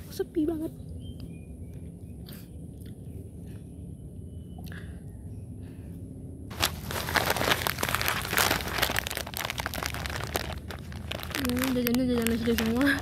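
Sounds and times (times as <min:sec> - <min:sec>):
plastic packaging crinkling: 0:06.5 - 0:13.0.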